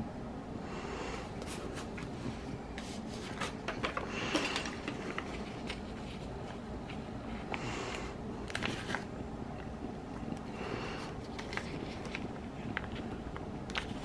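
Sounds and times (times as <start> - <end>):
paper rustling: 2.8 - 7.6, 8.5 - 9.1, 11.1 - 14.0.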